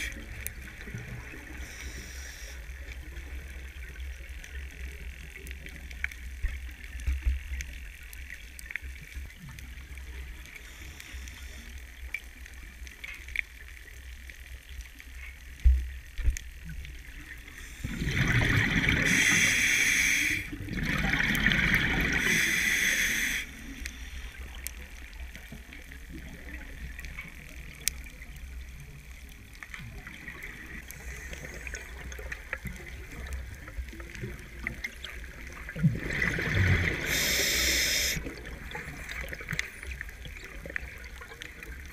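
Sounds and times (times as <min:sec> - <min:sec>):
small crackles and clicks: 0:00.0 - 0:41.9
diver's exhaled air bubbles: 0:17.8 - 0:19.4, 0:20.6 - 0:22.3, 0:35.6 - 0:39.0.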